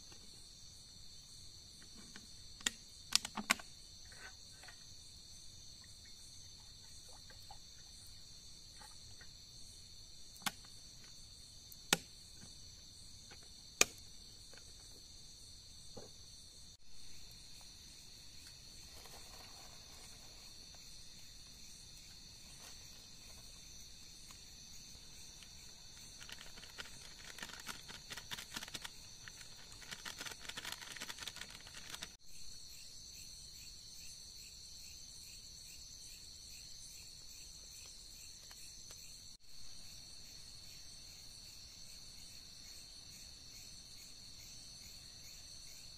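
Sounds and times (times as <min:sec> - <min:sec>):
crickets chirping: 0:00.0 - 0:45.9
crackly rustling: 0:24.9 - 0:32.2.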